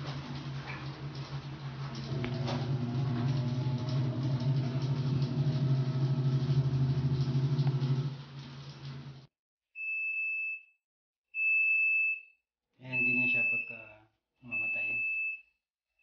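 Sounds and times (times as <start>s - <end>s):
washing machine motor humming: 0.0s - 9.3s.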